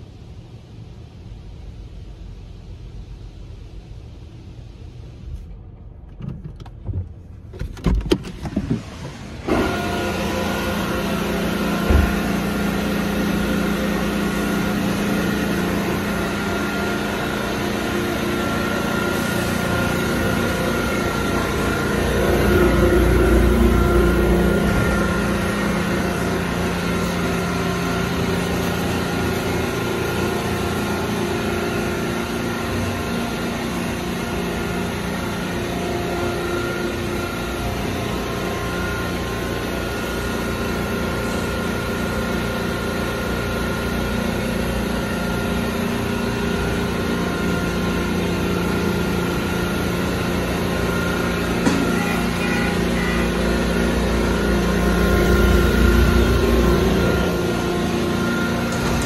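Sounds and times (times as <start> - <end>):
low rumble: 0.0 - 7.6, 19.5 - 26.8, 53.8 - 59.0
car wash pumps and spray whine: 0.0 - 59.0.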